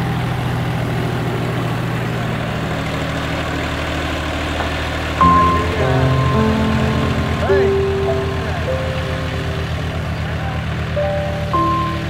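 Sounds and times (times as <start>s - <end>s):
tractor engine chugging: 0.0s - 12.0s
background music: 5.2s - 12.0s.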